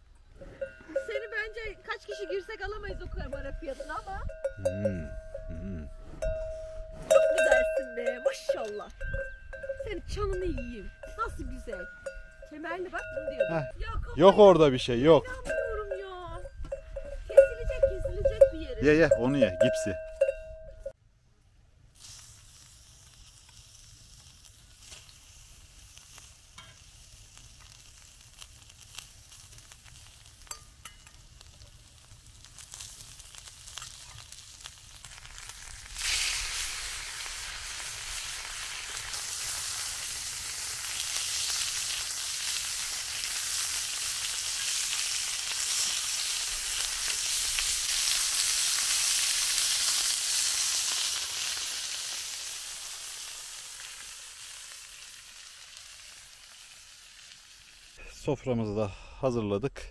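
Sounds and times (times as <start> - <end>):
onions crackling in pan: 21.9 - 58.0
steaks sizzling in hot pan: 22.0 - 58.0.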